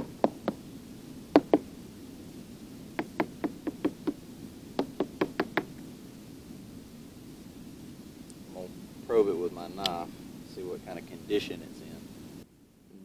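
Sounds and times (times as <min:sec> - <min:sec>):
hammer tapping hollow wood: 0:01.4 - 0:01.6, 0:03.0 - 0:04.2, 0:04.8 - 0:05.8.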